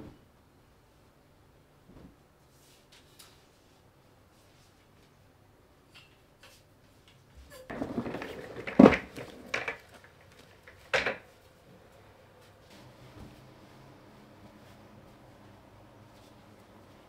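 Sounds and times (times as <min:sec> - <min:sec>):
office chair scraping rumble: 0:07.7 - 0:10.2.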